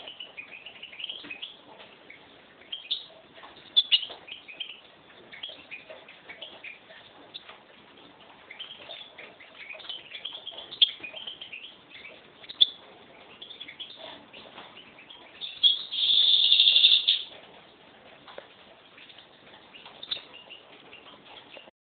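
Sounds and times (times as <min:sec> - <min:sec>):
finch singing: 0:00.0 - 0:07.5, 0:08.4 - 0:17.4, 0:18.8 - 0:21.7.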